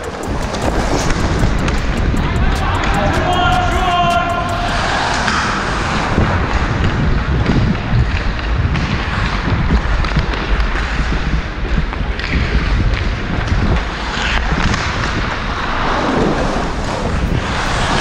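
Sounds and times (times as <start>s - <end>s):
sharp clacks: 0.0s - 5.5s
wind rumble on microphone: 0.0s - 18.0s
ice skates scraping: 4.8s - 18.0s.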